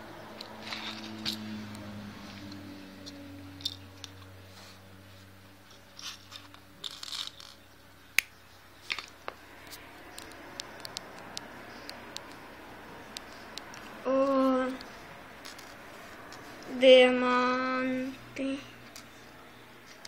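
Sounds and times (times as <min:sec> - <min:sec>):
low hum: 0:00.0 - 0:08.8
plastic pieces clicking and rustling: 0:06.0 - 0:07.6, 0:15.4 - 0:15.8.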